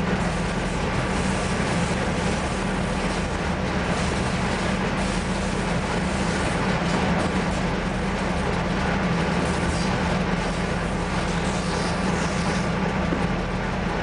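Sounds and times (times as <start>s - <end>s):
diesel engine droning: 0.0s - 14.0s
wheels on rails: 0.0s - 14.0s.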